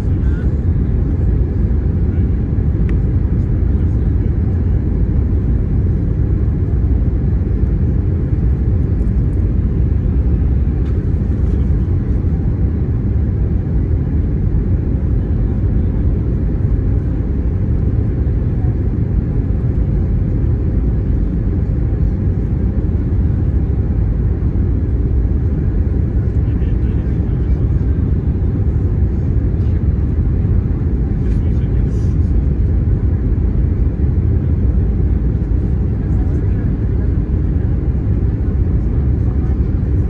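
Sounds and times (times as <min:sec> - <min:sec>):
low rumble of aircraft engines: 0:00.0 - 0:40.0.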